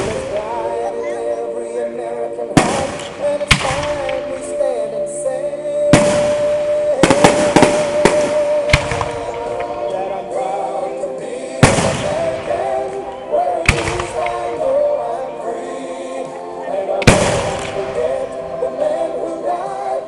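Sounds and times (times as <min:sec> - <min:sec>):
fireworks bursting: 0:00.0 - 0:00.8, 0:02.5 - 0:04.8, 0:05.9 - 0:10.6, 0:11.2 - 0:15.2, 0:16.9 - 0:19.2
music with long held notes: 0:00.0 - 0:20.0.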